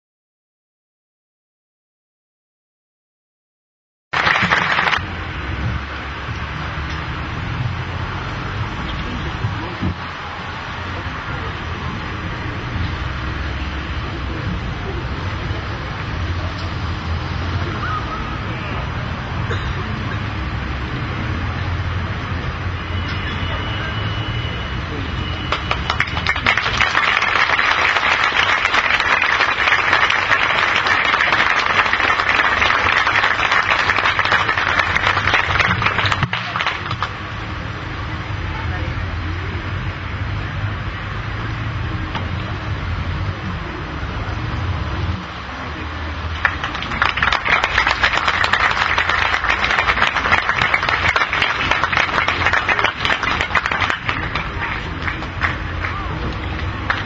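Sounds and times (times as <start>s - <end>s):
audience applauding: 4.1s - 5.0s, 25.4s - 37.2s, 46.3s - 57.0s.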